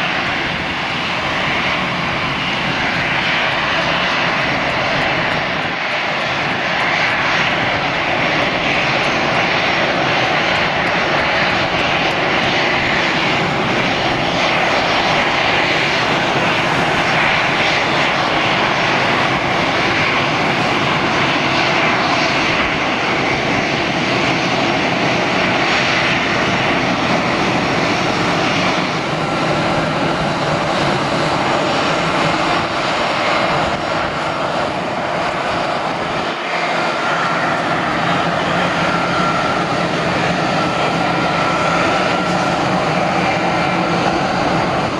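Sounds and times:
jet engines taxiing: 0:00.0 - 0:44.9.

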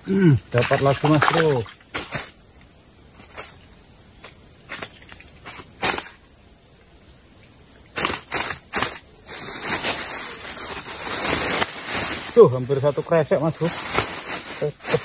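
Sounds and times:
insects droning: 0:00.0 - 0:15.0
rustles and knocks handling fish: 0:00.6 - 0:02.4, 0:04.2 - 0:06.2.

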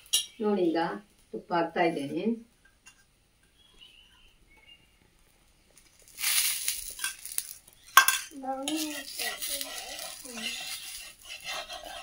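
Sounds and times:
ghee sizzling on hot griddle: 0:05.7 - 0:12.0.

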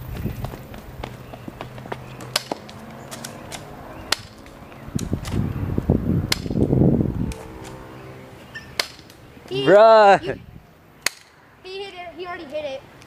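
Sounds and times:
low rushing noise: 0:00.0 - 0:11.6
airsoft pistol snaps: 0:06.3 - 0:06.6, 0:11.0 - 0:11.3.

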